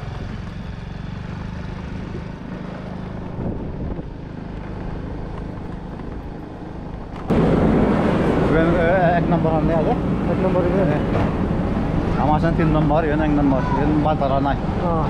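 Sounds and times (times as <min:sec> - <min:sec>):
scooter engine running: 0:00.0 - 0:08.4.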